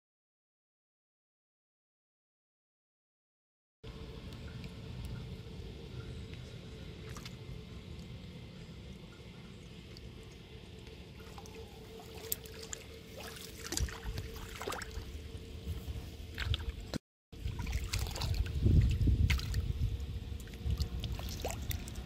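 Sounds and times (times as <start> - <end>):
shallow water sloshing: 9.9 - 22.0.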